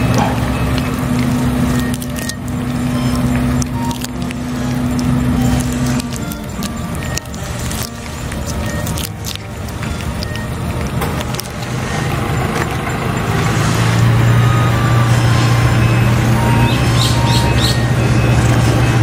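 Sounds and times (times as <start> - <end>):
engine running with low drone: 0.0 - 19.0
bird chirps: 15.7 - 18.0.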